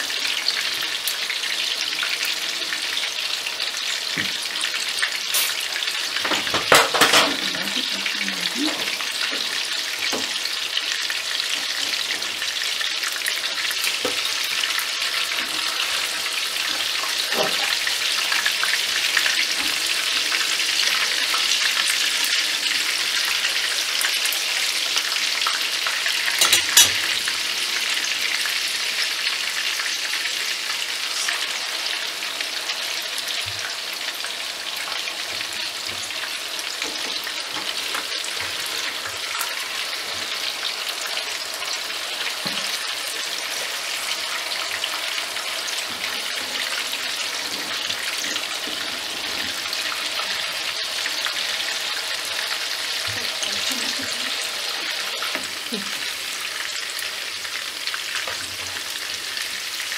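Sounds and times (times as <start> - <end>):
patties sizzling in oil: 0.0 - 59.9.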